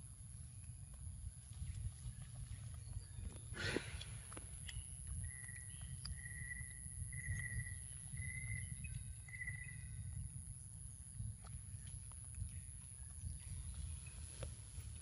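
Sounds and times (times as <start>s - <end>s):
wind rumble on microphone: 0.0s - 15.0s
faint clicks of monkey eating: 0.2s - 15.0s
high insect whine: 4.7s - 11.5s.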